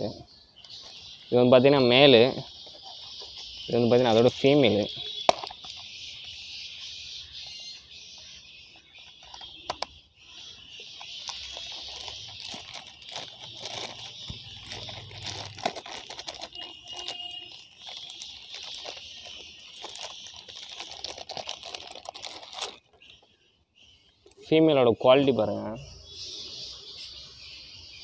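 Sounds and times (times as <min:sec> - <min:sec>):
plastic bag crinkling: 0:01.6 - 0:06.4, 0:10.9 - 0:23.2.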